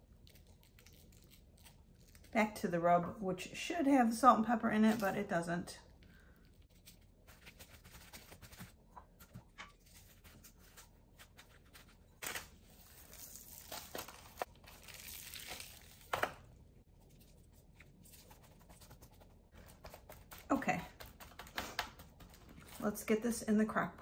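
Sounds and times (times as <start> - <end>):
parchment paper rustling: 6.2 - 23.2.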